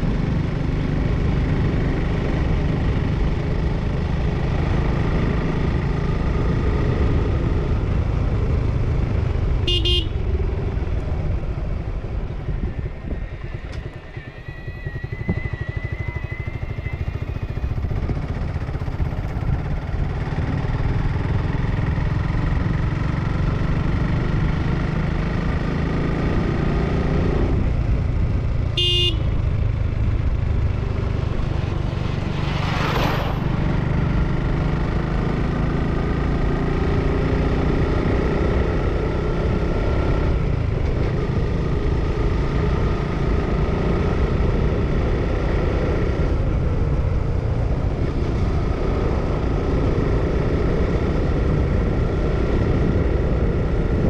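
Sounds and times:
motorcycle engine running: 0.0s - 54.0s
horn beep: 9.7s - 10.2s, 28.8s - 29.3s.

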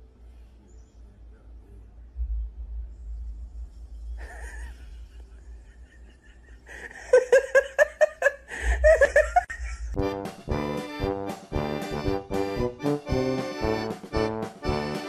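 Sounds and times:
person laughing: 4.2s - 10.0s.

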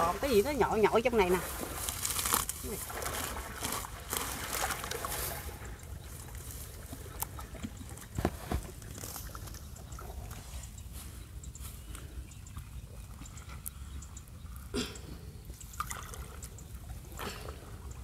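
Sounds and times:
water and mud sloshing: 0.0s - 18.0s.

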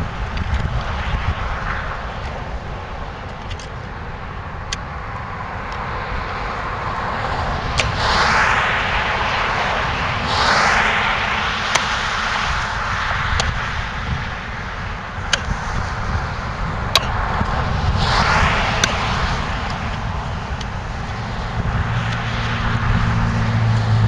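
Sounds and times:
hiss of passing vehicles: 0.0s - 24.0s
wind rumble on microphone: 0.0s - 24.0s.

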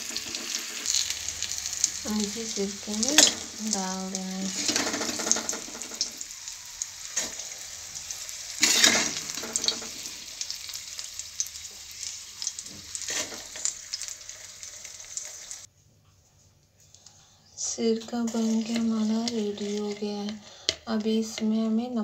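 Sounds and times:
oil and spices sizzling: 0.0s - 15.7s, 17.6s - 21.7s
metal spoon scraping pan: 4.4s - 6.1s, 8.6s - 10.0s, 17.8s - 21.7s.

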